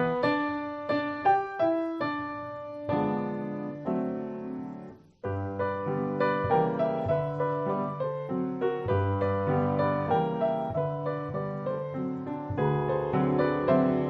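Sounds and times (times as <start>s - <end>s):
solo piano music: 0.0s - 14.0s.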